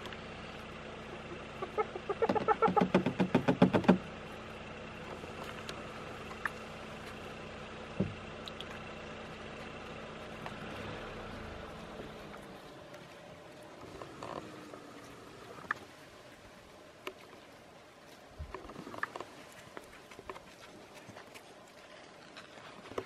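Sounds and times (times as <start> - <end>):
hyena giggling yelps: 1.1 - 2.9.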